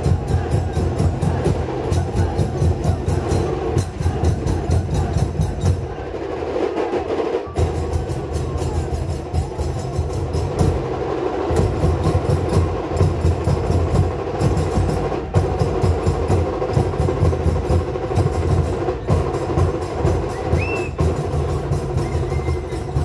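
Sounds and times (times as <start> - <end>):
sharp metal percussion: 0.0 - 5.9
big drums fast beat: 0.0 - 23.0
short whistle: 20.3 - 21.0, 22.0 - 22.9.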